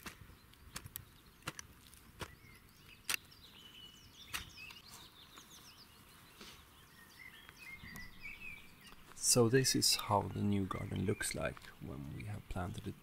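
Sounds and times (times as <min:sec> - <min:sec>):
hoe chopping into soil: 0:00.0 - 0:02.4, 0:04.3 - 0:04.7
birds chirping: 0:00.0 - 0:13.0.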